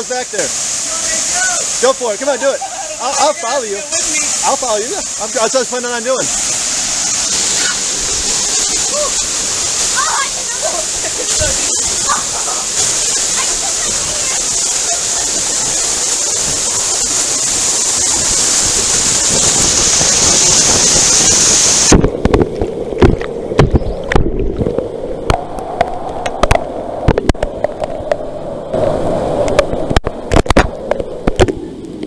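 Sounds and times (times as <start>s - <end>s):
waterfall rushing: 0.0s - 32.0s
muffled underwater knocks and gurgles: 21.9s - 28.2s.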